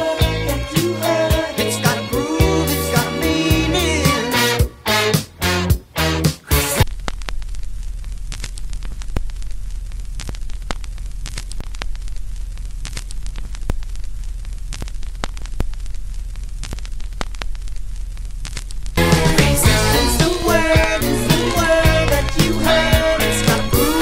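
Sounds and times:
vinyl crackles and pops: 6.7s - 24.0s
low hum: 6.8s - 24.0s.

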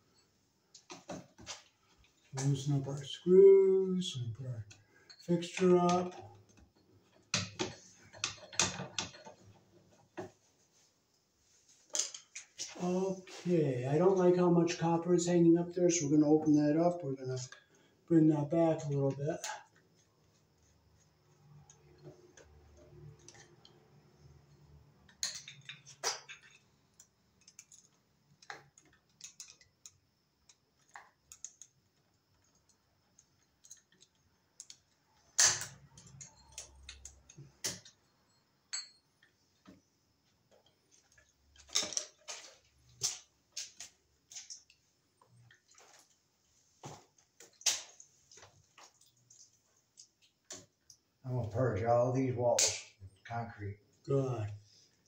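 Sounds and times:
tools clicking on metal terminals: 21.6s - 39.4s.

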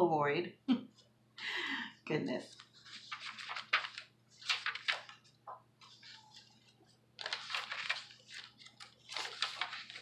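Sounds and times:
paper pages rustling and flapping: 2.5s - 10.0s.

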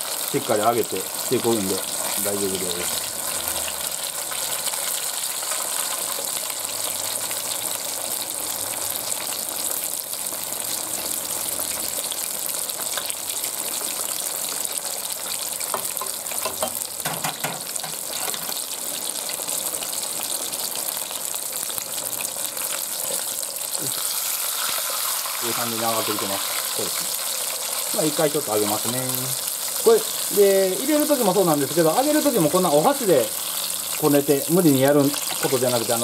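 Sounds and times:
fish deep-frying in oil: 0.0s - 36.0s.

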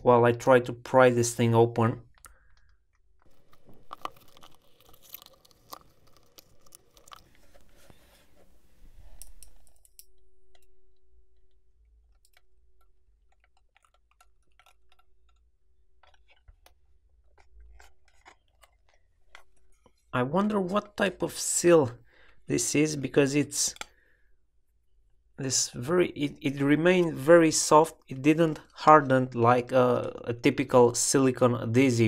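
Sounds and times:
sticky sealant crackling and tearing: 2.1s - 8.0s, 12.2s - 20.2s.

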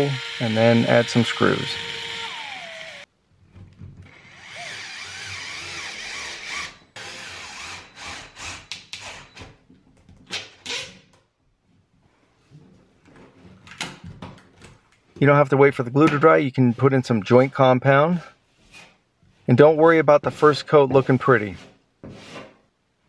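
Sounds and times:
electric screwdriver driving screws: 0.0s - 3.1s, 4.2s - 8.3s.

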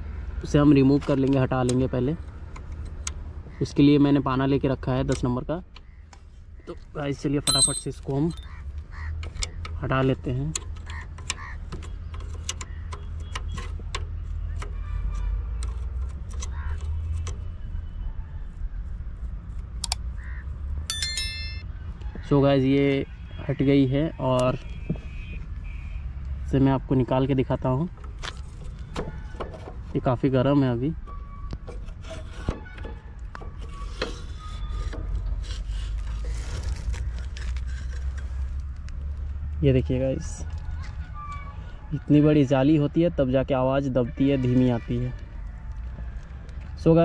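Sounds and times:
spanner metal clicks and clinks: 7.5s - 8.5s, 20.9s - 21.6s
short squeaks: 31.0s - 38.4s.

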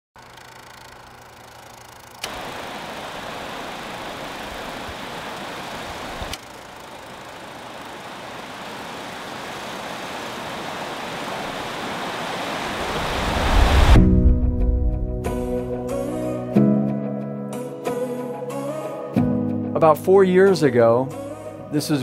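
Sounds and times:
river rapids rushing: 10.4s - 13.9s
rushing noise: 11.1s - 15.8s.

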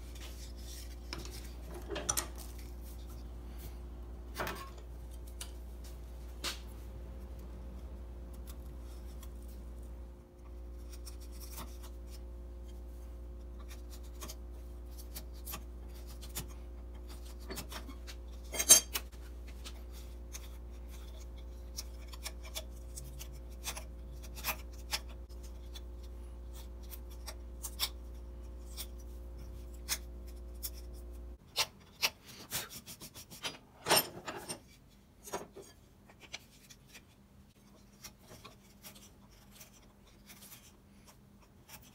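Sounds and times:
steady low hum: 0.0s - 31.5s.

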